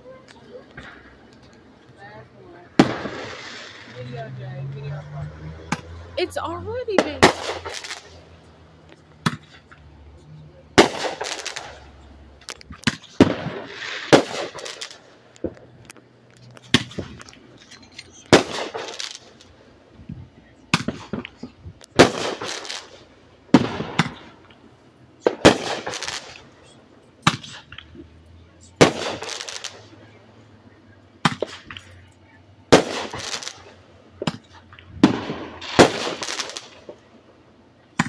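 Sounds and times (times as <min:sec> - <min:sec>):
fireworks bangs: 0:00.0 - 0:09.9, 0:10.6 - 0:19.6, 0:20.5 - 0:30.2, 0:31.2 - 0:32.0, 0:32.7 - 0:37.1
fireworks crackling: 0:00.0 - 0:38.0.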